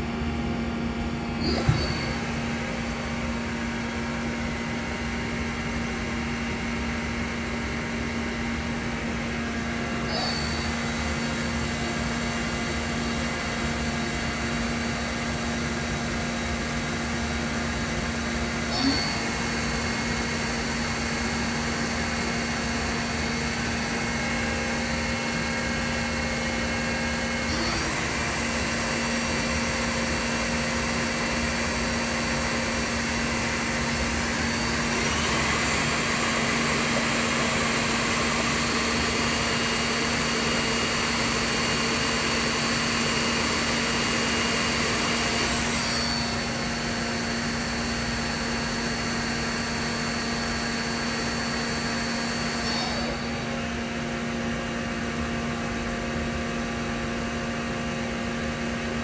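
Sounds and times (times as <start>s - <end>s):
lathe spindle humming and whining: 0.0s - 59.0s.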